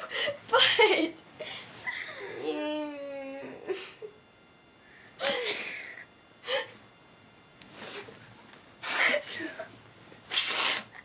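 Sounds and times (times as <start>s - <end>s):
woman laughing breathily: 0.0s - 2.4s, 5.2s - 6.8s.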